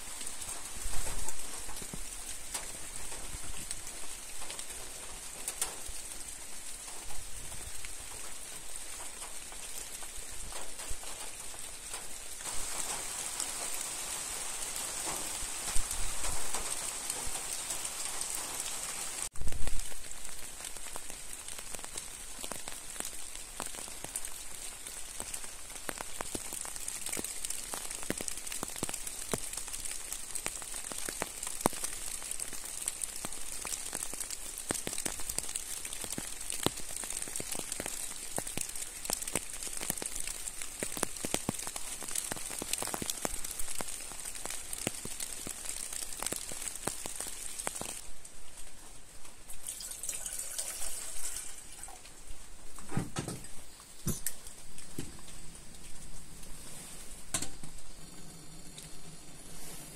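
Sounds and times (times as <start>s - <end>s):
rain hissing: 0.0s - 59.9s.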